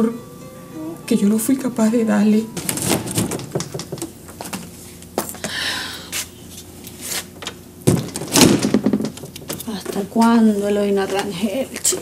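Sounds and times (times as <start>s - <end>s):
door opening and shutting: 2.6s - 4.2s
knocks: 3.0s - 4.1s, 7.9s - 9.6s.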